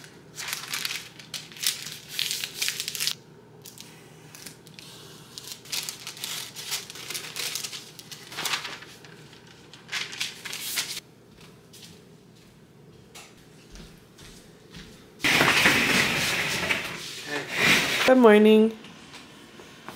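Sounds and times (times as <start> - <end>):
paper rustling and crinkling: 0.0 - 11.0.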